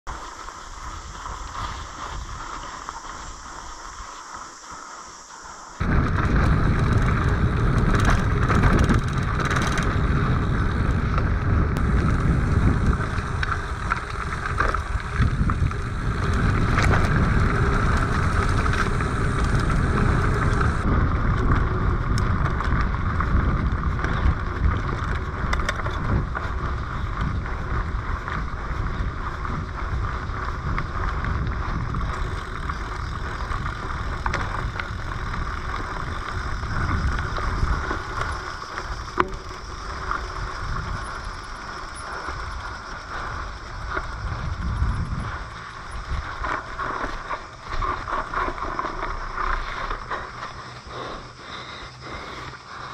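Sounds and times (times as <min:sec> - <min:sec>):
bike tyre rumble on dirt: 0:00.1 - 0:52.9
bike knocks and rattles: 0:05.8 - 0:42.4
wind buffeting microphone: 0:05.8 - 0:52.9.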